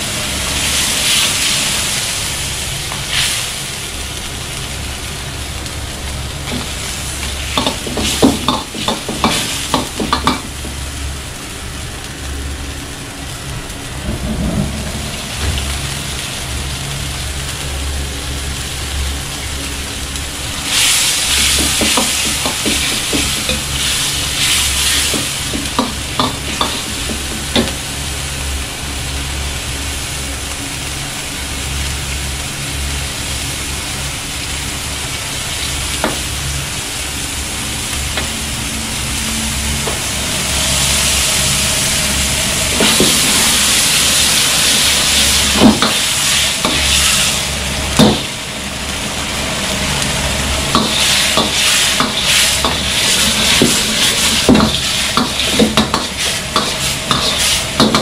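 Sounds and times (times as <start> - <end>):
sauce bubbling and sizzling: 0.0 - 58.0
ladle scraping and knocking wok: 6.4 - 10.8, 20.7 - 27.8, 38.1 - 48.3, 50.7 - 58.0.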